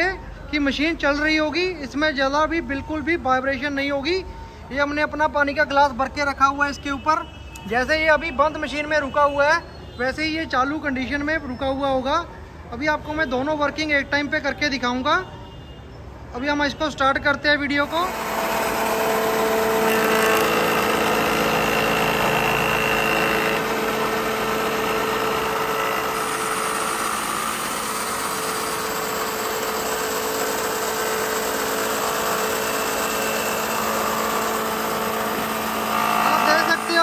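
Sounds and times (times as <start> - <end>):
planer and mortiser cutting wood: 17.8 - 37.0
woodworking machine motor humming: 17.8 - 37.0.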